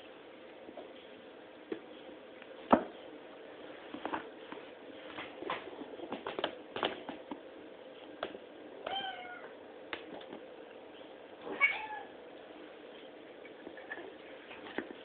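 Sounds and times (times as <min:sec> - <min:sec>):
cat meowing: 0:08.9 - 0:09.5, 0:11.5 - 0:12.2.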